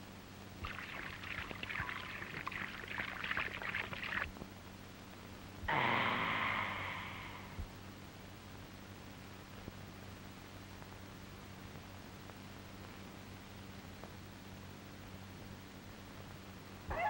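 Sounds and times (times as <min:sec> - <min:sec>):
water splashing in a tub: 0:00.6 - 0:04.3.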